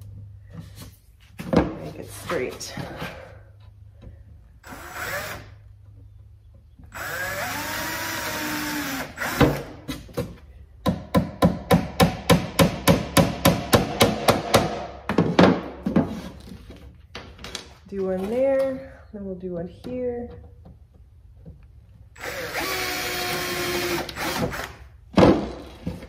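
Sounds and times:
cordless drill boring into wood: 4.6 - 5.5, 6.9 - 9.6, 22.2 - 24.8.

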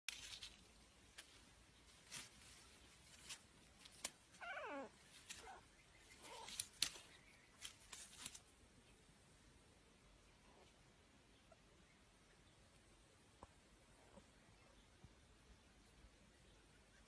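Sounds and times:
faint clicks and rustles: 0.1 - 9.0
cat meowing: 4.4 - 5.6.

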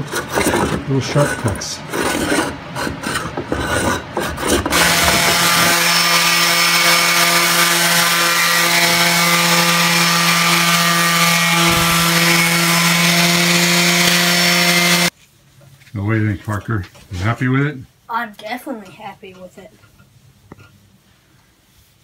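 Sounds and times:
hand plane scraping: 0.0 - 15.1
orbital sander on wood: 4.7 - 15.1.

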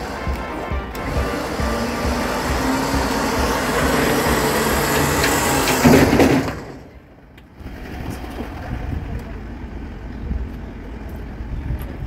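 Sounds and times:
electric winch motor hum: 0.0 - 6.8.

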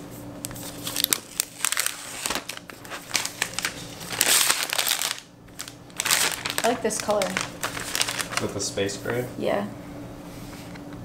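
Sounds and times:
plastic wrap crinkling: 0.5 - 9.2.

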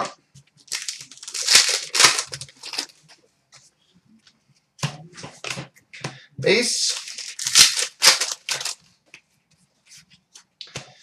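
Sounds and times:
card packaging rustling: 0.6 - 3.0, 6.8 - 8.8.

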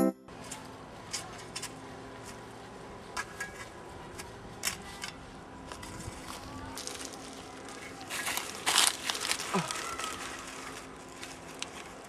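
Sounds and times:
cloth rustling and crinkling: 6.1 - 12.0.

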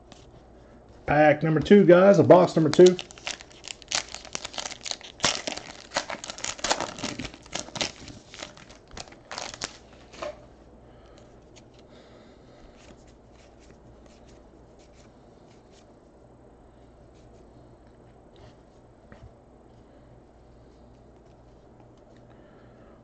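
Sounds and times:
foil wrapper tearing and crinkling: 2.5 - 10.0.

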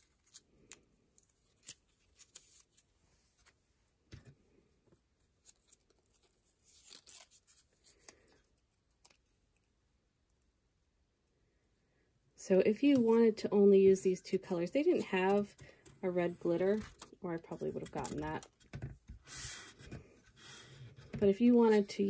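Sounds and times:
rustle of peeling vinyl: 0.0 - 3.8, 5.2 - 9.6, 14.8 - 21.9
vinyl crinkling and clicking: 14.4 - 18.8.

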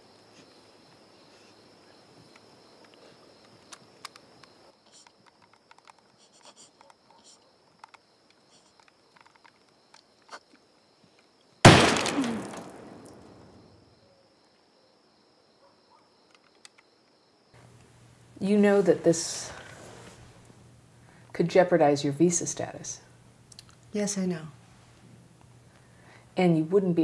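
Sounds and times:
faint clicks and rustles: 2.1 - 11.5
loud bang: 11.7 - 13.6.

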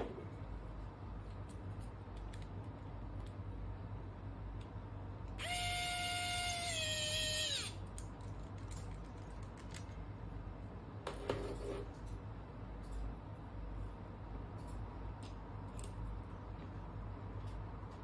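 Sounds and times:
electric screwdriver whine: 5.4 - 7.8.

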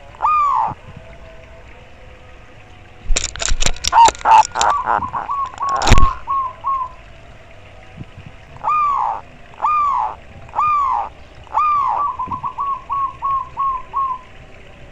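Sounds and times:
dove cooing: 0.0 - 1.1, 3.2 - 7.1, 8.0 - 14.4.

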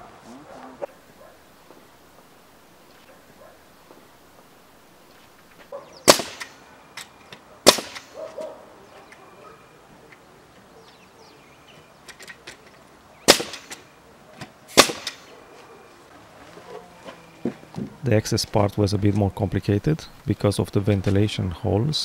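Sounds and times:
nail gun shots: 6.0 - 8.3, 13.2 - 15.3.

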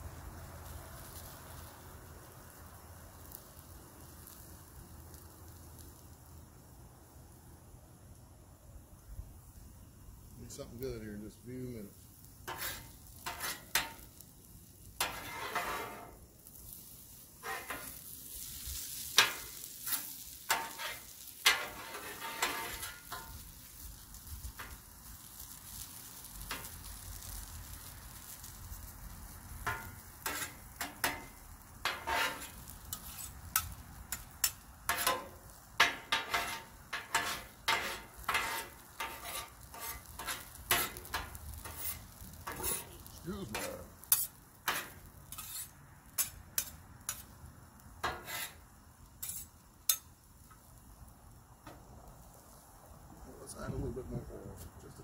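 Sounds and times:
potatoes sizzling: 0.0 - 54.8
metal spatulas scraping griddle: 12.4 - 14.2, 15.0 - 23.4, 29.7 - 47.3, 48.0 - 48.6, 49.2 - 50.0.

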